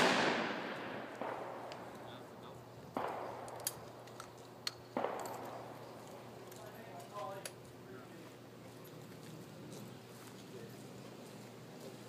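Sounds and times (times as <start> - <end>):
shotgun shots: 0.0 - 2.2, 3.0 - 3.8, 5.0 - 5.9.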